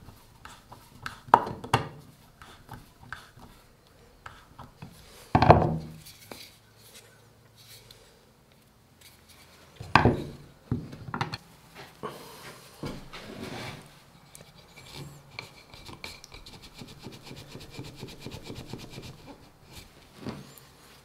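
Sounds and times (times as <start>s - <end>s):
wooden plaque rubbed on board: 14.4s - 19.9s.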